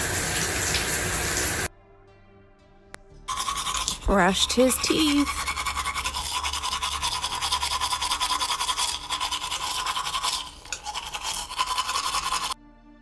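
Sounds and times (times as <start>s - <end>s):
toothbrush scrubbing teeth: 3.3s - 12.6s.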